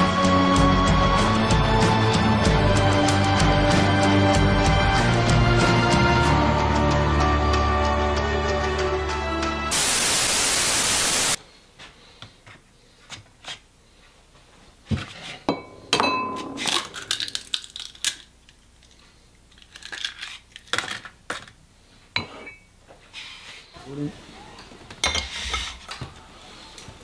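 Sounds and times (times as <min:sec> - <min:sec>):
loud hiss: 0:09.7 - 0:11.4
glass bowl clinks: 0:15.5 - 0:16.6
eggshell cracking: 0:16.6 - 0:21.2.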